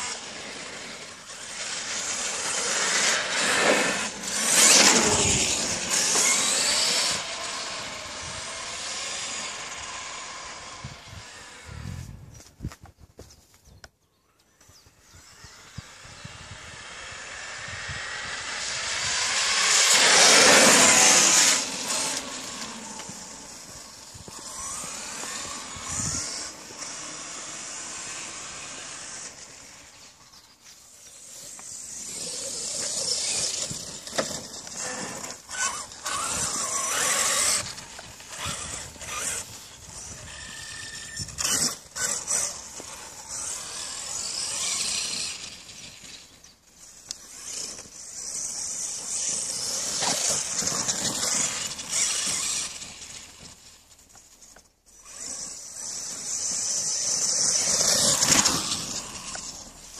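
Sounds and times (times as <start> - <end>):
electric motor whining: 0.0 - 12.4, 15.0 - 59.9
tyre noise: 19.3 - 59.9.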